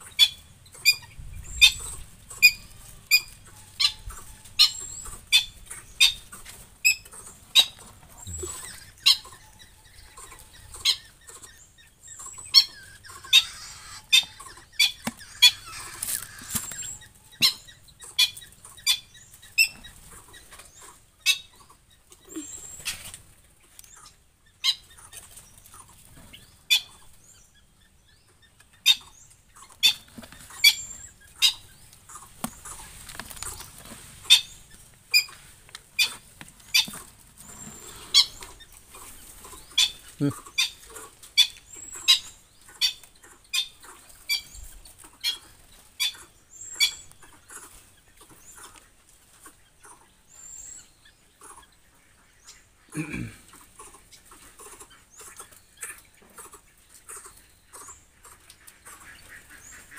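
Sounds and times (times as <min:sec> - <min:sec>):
short sharp bird calls: 0:12.2 - 0:17.6
rustling: 0:12.8 - 0:17.1, 0:31.9 - 0:40.2.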